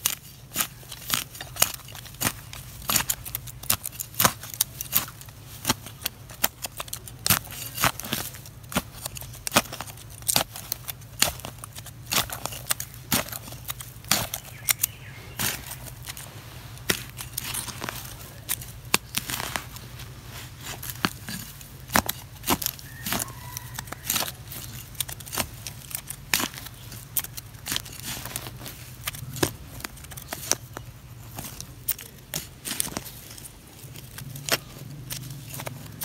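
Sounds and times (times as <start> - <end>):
stick scraping soil: 0.0 - 36.0
steady low hum: 8.3 - 22.9.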